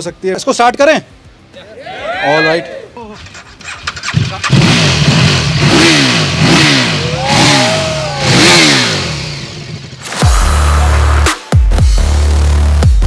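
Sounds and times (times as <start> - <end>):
motorcycle engine revving: 3.2 - 11.2
electronic dance music: 10.0 - 13.0.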